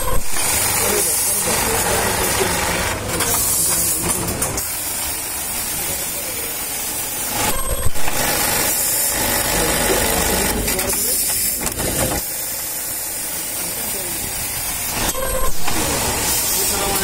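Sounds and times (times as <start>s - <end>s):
machinery hissing: 8.3s - 17.0s.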